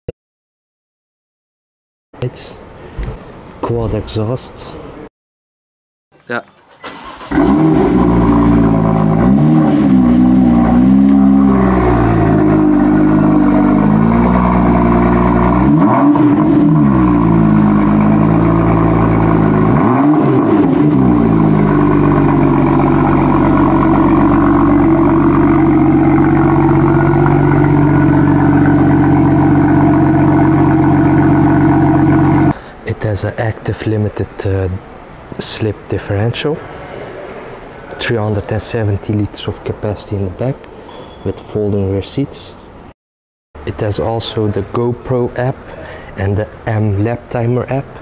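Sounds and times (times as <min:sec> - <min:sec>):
car engine revving and idling: 0:07.0 - 0:32.6.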